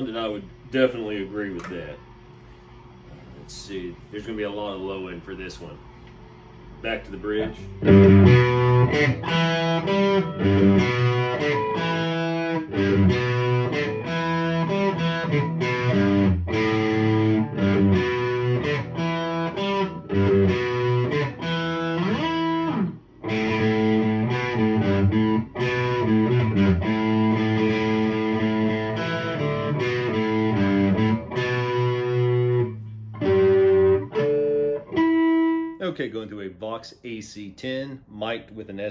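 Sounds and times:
electric guitar through amplifier: 6.1s - 35.8s.

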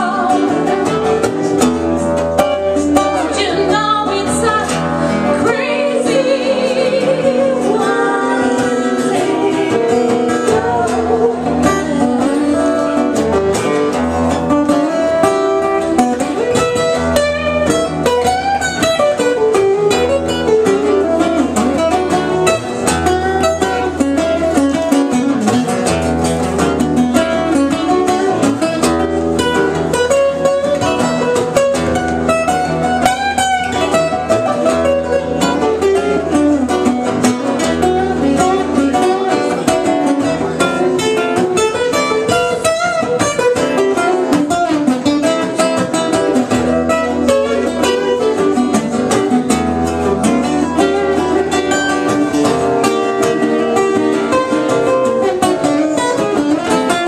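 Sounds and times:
person singing: 0.0s - 1.8s, 2.6s - 13.3s
acoustic guitars strummed: 0.0s - 57.0s.

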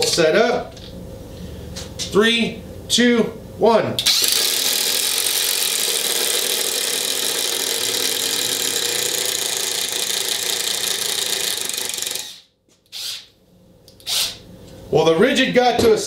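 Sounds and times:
impact drivers hammering screws: 4.1s - 13.2s.

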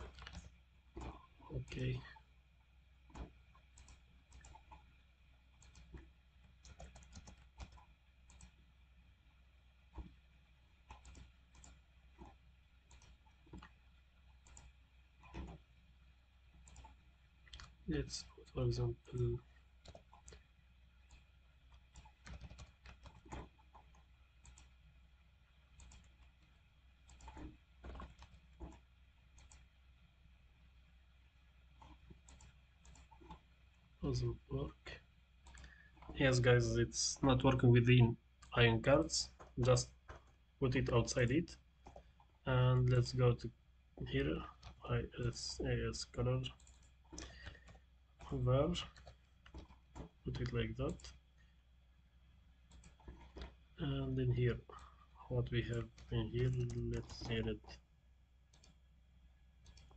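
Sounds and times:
faint keyboard keystrokes: 0.0s - 2.0s, 6.6s - 8.6s, 21.0s - 24.7s, 55.5s - 57.8s, 58.5s - 58.8s
keyboard typing: 0.0s - 2.0s, 3.1s - 4.8s, 5.6s - 6.0s, 6.6s - 8.6s, 10.8s - 15.6s, 16.6s - 17.8s, 19.1s - 20.4s, 21.0s - 24.8s, 25.7s - 26.4s, 27.0s - 29.7s, 31.8s - 33.5s, 35.4s - 36.4s, 41.0s - 42.2s, 44.1s - 51.2s, 52.7s - 53.6s, 55.5s - 57.8s, 58.5s - 58.8s, 59.6s - 59.9s.

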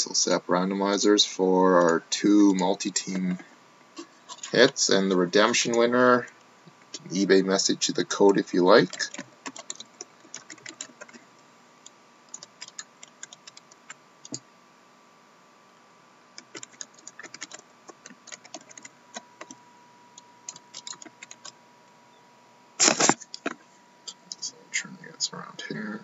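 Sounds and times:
computer keyboard typing: 8.2s - 11.2s, 12.3s - 14.4s, 16.4s - 19.6s, 20.5s - 21.6s.

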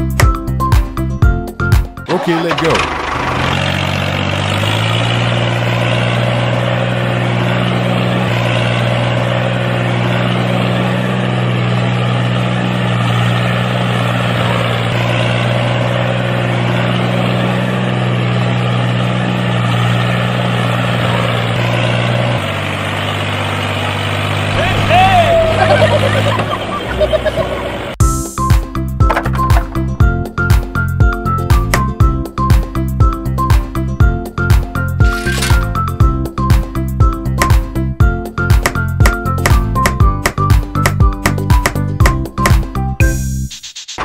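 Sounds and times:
tractor engine running: 1.7s - 32.8s, 33.4s - 42.8s.

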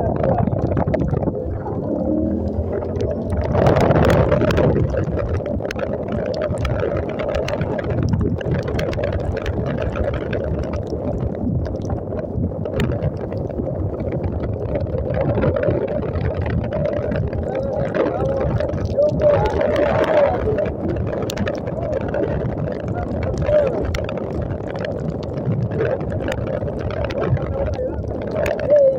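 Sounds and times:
wet road noise: 0.0s - 28.9s
wind rushing over microphone: 0.0s - 28.9s
motorcycle engine: 1.3s - 4.5s.

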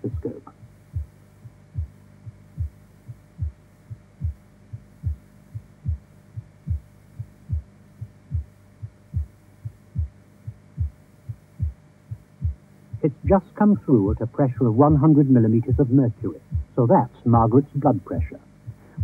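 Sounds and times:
pulse thuds through stethoscope: 0.0s - 13.4s, 15.7s - 16.8s, 18.6s - 19.0s
low hum: 0.0s - 19.0s.

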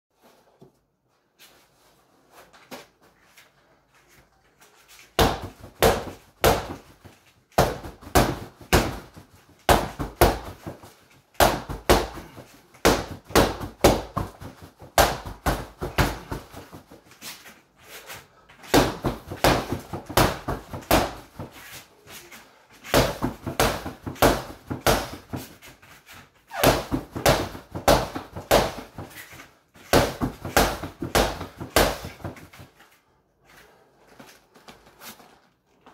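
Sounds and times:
gloved punches on padded dummy: 5.2s - 17.0s, 18.6s - 21.6s, 22.8s - 25.6s, 26.5s - 29.2s, 29.8s - 32.6s.

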